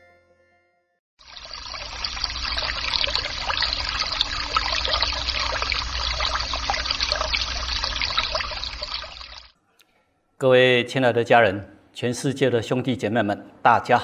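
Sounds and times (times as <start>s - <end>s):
stream water trickling and babbling: 1.2s - 9.6s.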